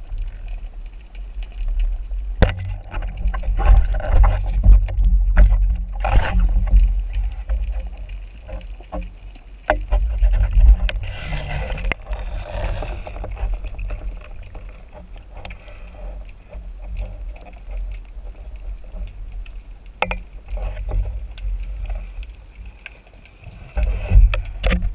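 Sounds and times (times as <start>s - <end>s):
underwater low rumble: 0.0s - 24.9s
hissing water rush: 10.1s - 24.9s.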